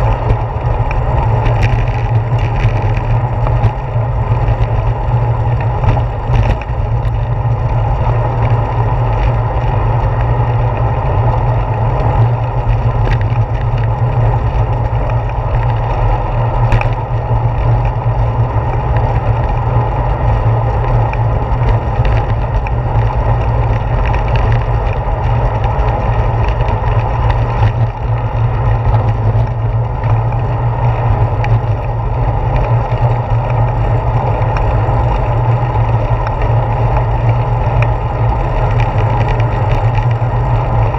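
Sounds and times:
bicycle clicks and knocks: 0.0 - 40.9
bicycle tyres on pavement: 0.0 - 40.9
wind on microphone: 0.0 - 40.9.

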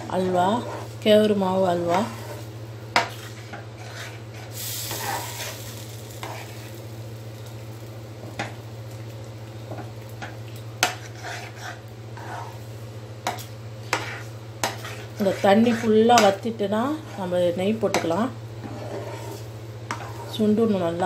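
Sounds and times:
metal spoon stirring and scraping: 0.0 - 6.7, 10.8 - 12.6, 13.2 - 20.6
thick mixture bubbling in a pan: 1.8 - 12.7, 13.8 - 20.5.

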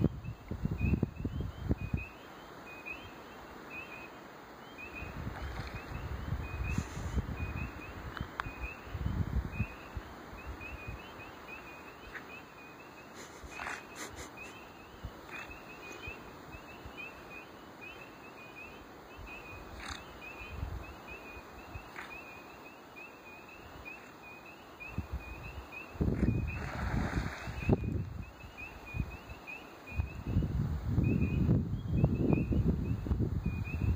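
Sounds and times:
wind buffeting microphone: 0.0 - 2.1, 5.0 - 11.1, 24.8 - 29.3, 29.9 - 33.9
spring peepers chorus: 0.0 - 33.9.

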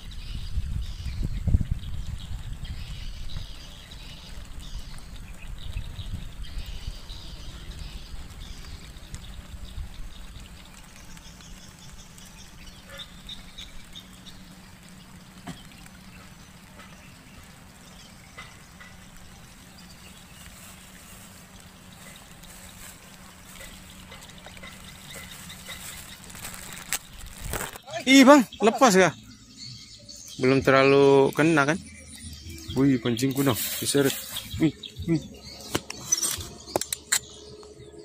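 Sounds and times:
wind rumble on microphone: 0.0 - 14.2
wildlife chirping calls: 0.0 - 38.0.

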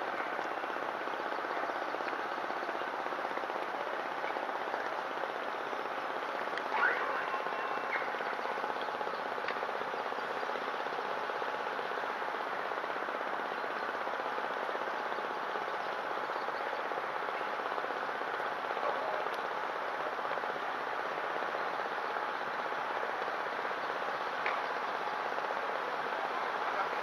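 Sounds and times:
rain falling: 0.0 - 27.0.

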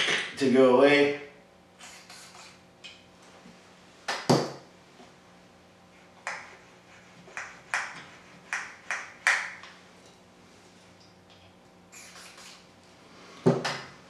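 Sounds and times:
aerosol spray bursts: 1.8 - 2.6, 12.0 - 12.6.

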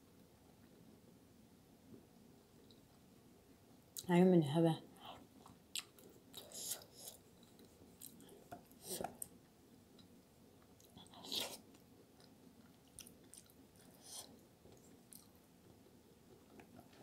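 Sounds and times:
chewing and wet mouth clicks: 5.4 - 6.8, 12.2 - 14.0, 14.7 - 15.4.

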